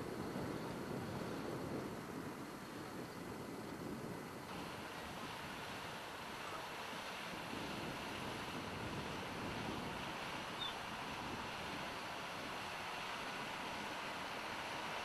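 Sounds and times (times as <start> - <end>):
wind on the microphone: 0.0 - 15.0.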